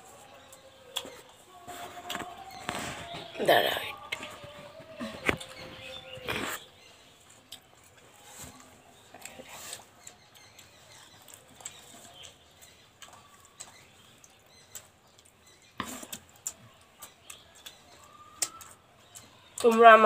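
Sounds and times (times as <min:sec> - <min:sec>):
chewing smacks: 0:09.2 - 0:19.6.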